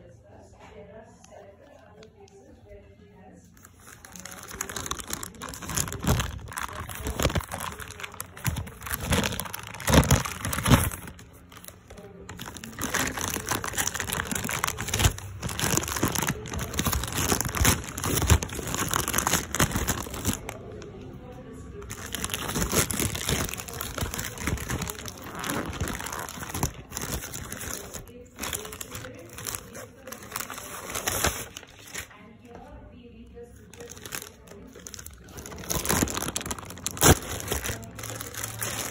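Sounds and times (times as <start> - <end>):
plastic mailer crinkling: 3.6 - 21.0, 21.8 - 32.2, 33.6 - 38.9.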